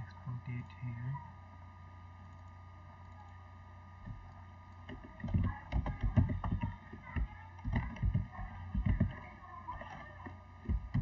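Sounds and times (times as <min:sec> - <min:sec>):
low electrical hum: 0:00.0 - 0:11.0
computer keyboard typing: 0:04.1 - 0:11.0.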